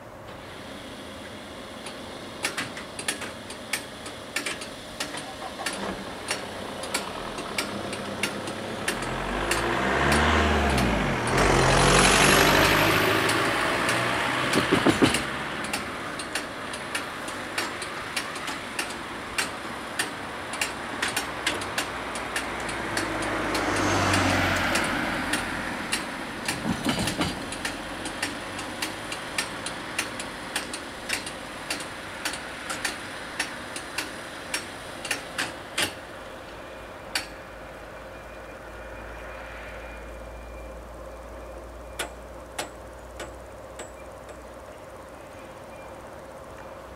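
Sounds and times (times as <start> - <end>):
regular clicking: 1.8 - 11.5, 12.6 - 36.0
vehicles passing: 4.7 - 46.9
tyres clattering over rails: 12.6 - 36.6.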